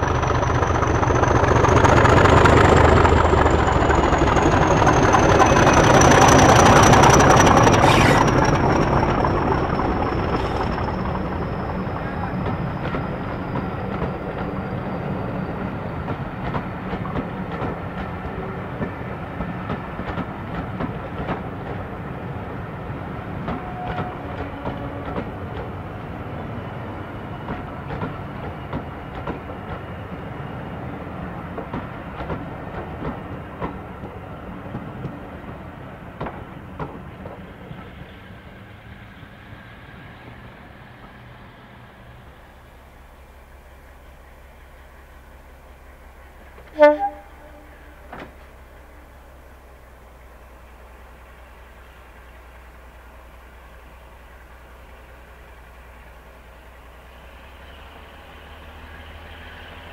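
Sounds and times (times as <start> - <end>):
train wheels clicking on rail joints: 0.0 - 42.1, 46.4 - 49.2
diesel train engine: 0.0 - 59.9.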